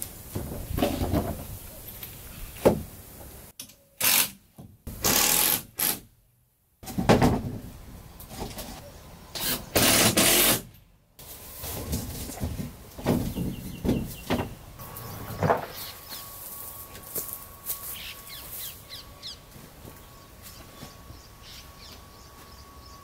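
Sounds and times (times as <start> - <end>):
power tool running: 9.4 - 10.7
handling knocks and clatter: 11.6 - 14.6.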